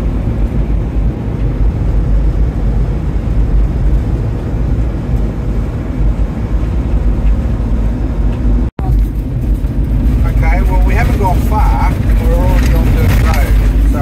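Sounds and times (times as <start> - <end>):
vehicle interior road rumble: 0.0 - 14.0.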